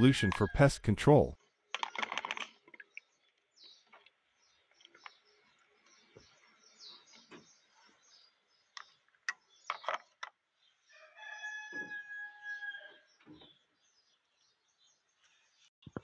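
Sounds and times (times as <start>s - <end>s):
rooster crowing: 10.9s - 13.0s.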